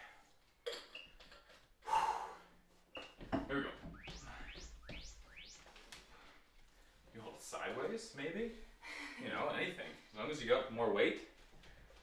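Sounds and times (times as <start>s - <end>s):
quick rising chirps: 3.9s - 5.8s.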